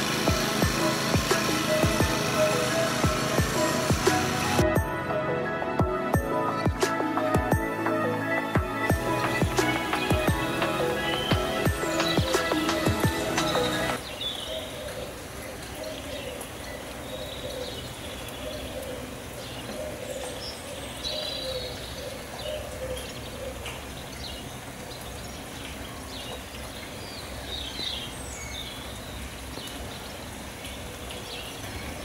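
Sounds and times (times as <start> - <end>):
songbirds chirping and trilling: 0.0 - 32.0
dove cooing: 9.9 - 23.8.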